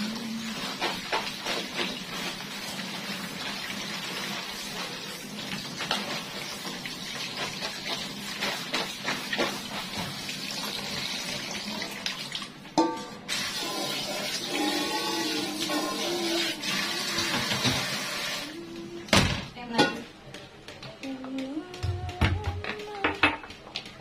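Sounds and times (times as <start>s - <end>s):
water running into a basin: 0.0s - 18.6s.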